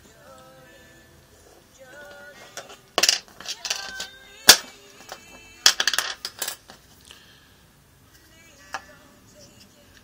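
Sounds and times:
metal coin cells clattering on table: 5.7s - 6.6s.

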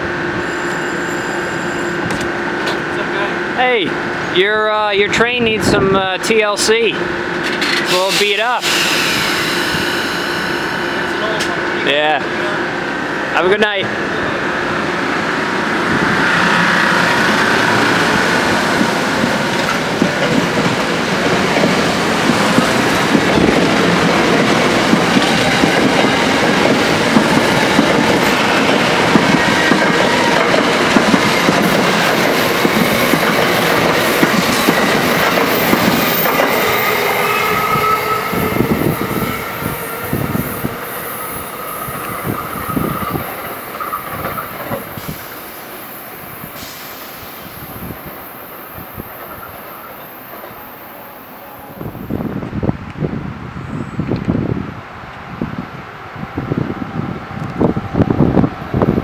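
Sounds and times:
train wheel squeal: 0.4s - 2.1s, 7.4s - 11.4s, 35.3s - 45.6s
train wheels clacking over rail joints: 18.6s - 38.0s.

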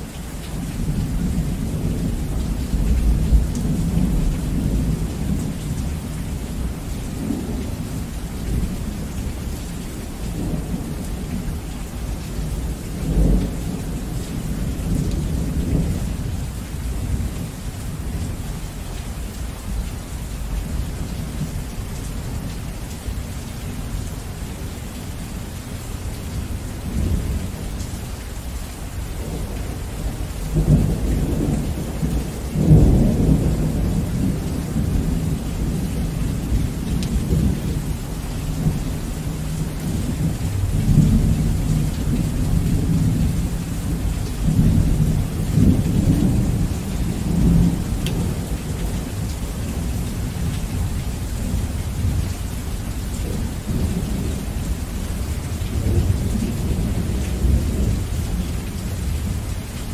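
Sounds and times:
heavy rain: 0.0s - 59.9s
rolling thunder: 29.2s - 50.8s.

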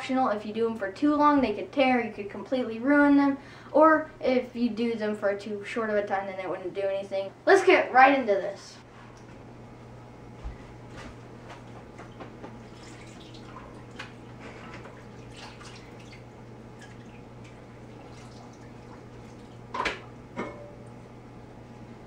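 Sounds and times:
water dripping and splashing in sink: 11.6s - 20.2s.

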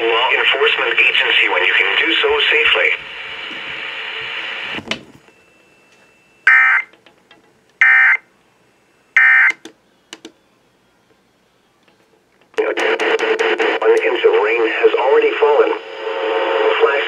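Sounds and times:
radio hiss: 0.0s - 4.8s, 12.6s - 17.0s
short electronic beeps: 9.2s - 9.6s.

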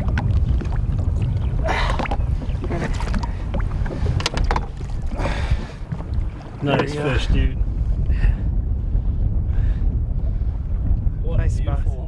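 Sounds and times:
splashes and knocks: 0.0s - 7.2s
water lapping at boat: 0.0s - 11.1s
wind buffeting microphone: 0.0s - 12.0s.

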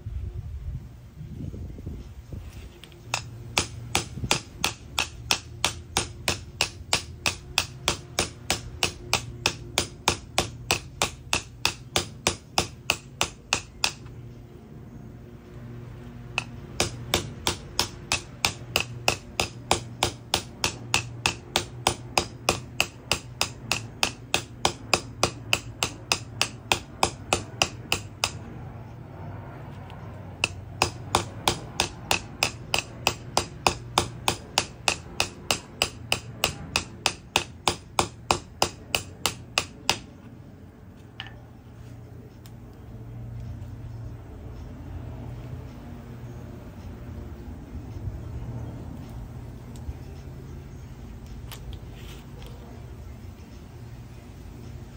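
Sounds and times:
hammer tapping on metal: 3.1s - 14.2s, 16.3s - 28.5s, 30.4s - 40.2s.

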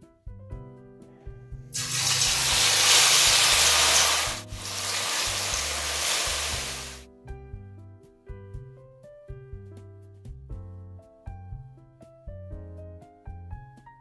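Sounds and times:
background music: 0.0s - 14.0s
beef sizzling in hot oil: 1.8s - 7.0s.

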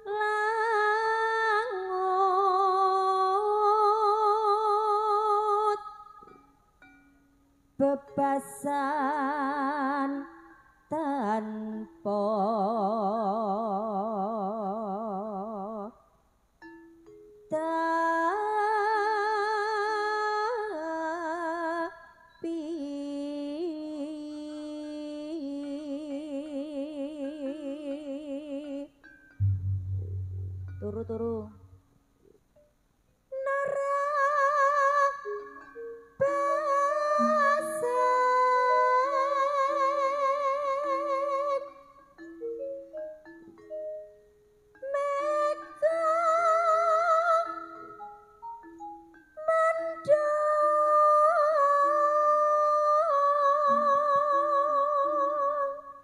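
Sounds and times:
woman singing with vibrato: 0.0s - 6.2s, 7.8s - 16.0s, 17.5s - 31.8s, 33.3s - 35.6s, 36.2s - 41.9s, 44.8s - 48.0s, 49.4s - 56.0s
sustained accompanying note: 29.4s - 31.5s.

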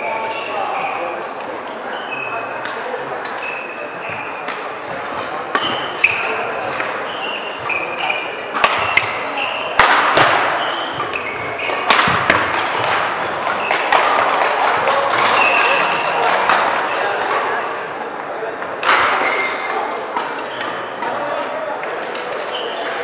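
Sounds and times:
shoes squeaking on floor: 0.0s - 2.5s, 3.3s - 4.6s, 5.6s - 14.1s, 15.2s - 16.2s, 19.1s - 20.9s, 22.2s - 23.0s
rackets hitting shuttlecock: 2.6s - 17.5s, 18.2s - 23.0s.

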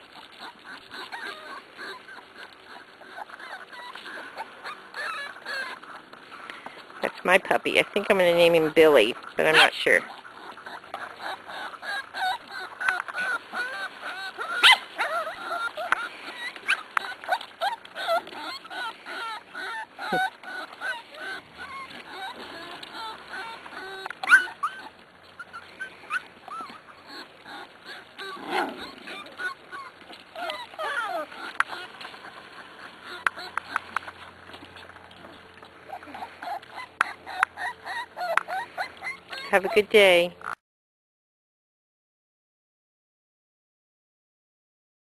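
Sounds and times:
puppies whining and yipping: 0.0s - 40.6s
puppy sharp yelp: 11.2s - 23.6s, 24.2s - 24.9s.

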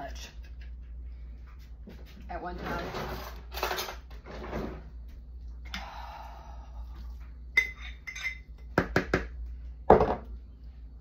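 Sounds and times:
glass jars clinking: 7.6s - 8.7s.

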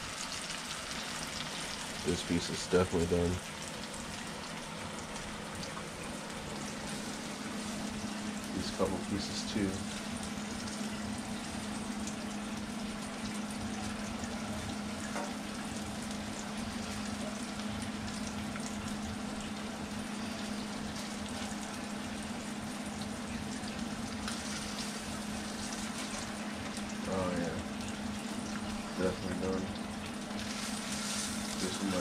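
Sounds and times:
fish sizzling in a frying pan: 0.0s - 32.0s.

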